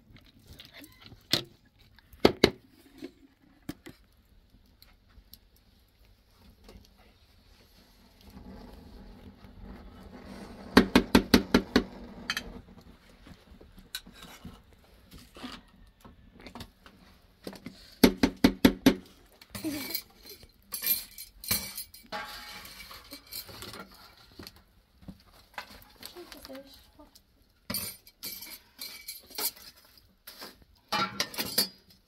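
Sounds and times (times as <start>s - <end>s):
ladle scraping in pot: 22.1s - 24.2s.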